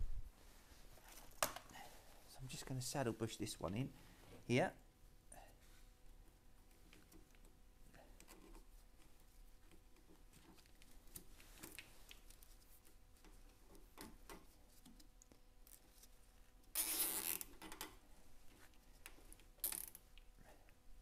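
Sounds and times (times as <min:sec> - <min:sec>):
clicks and rustling of cable: 0:08.2 - 0:16.1.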